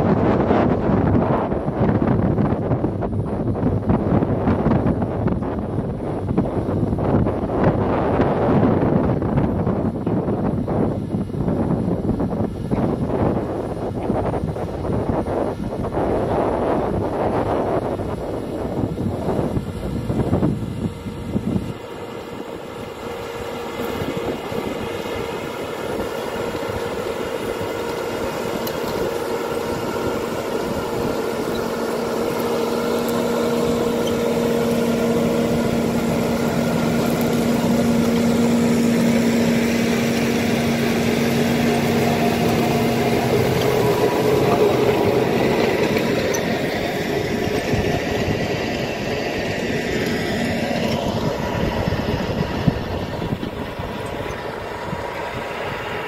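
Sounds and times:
tractor engine drone: 0.0s - 56.0s
tines rumbling through soil: 18.6s - 56.0s.

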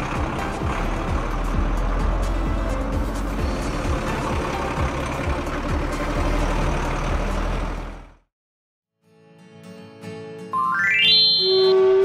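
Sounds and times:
heavy truck engine rumble: 0.0s - 8.3s.

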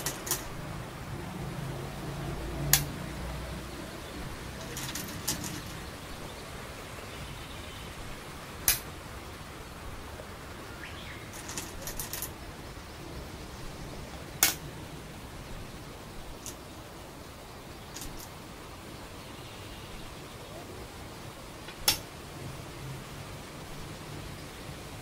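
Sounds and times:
steady low hiss: 0.0s - 25.0s
stones clacking on wooden board: 4.6s - 5.8s, 11.4s - 12.3s, 18.0s - 18.3s.

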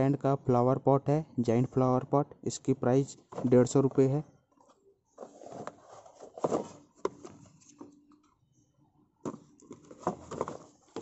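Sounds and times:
cardboard rustling and scraping: 3.2s - 4.0s, 4.6s - 8.0s, 9.3s - 11.0s.

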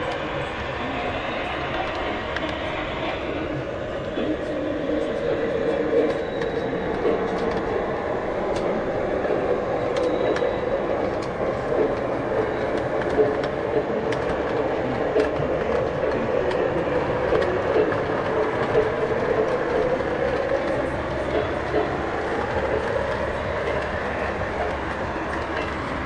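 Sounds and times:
model train rolling on track: 0.0s - 26.0s.

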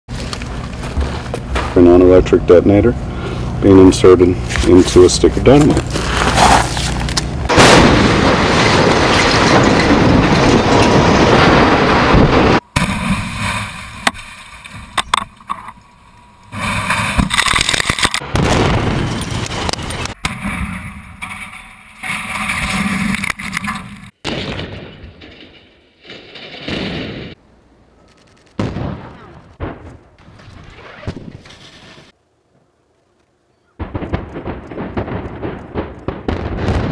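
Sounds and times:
concrete structures collapsing: 4.0s - 27.4s
explosive blast reports: 7.5s - 14.2s.

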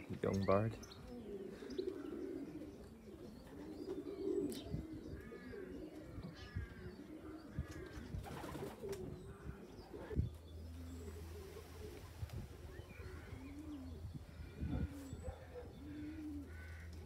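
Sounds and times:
pigeons cooing: 0.0s - 17.0s.

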